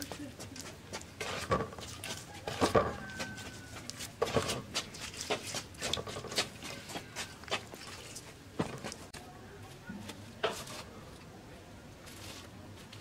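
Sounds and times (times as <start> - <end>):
hands rubbing wet paste: 1.0 - 9.2.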